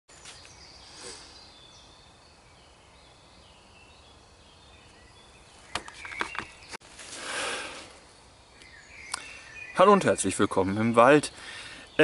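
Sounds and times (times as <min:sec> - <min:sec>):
songbird calls: 0:00.2 - 0:12.0.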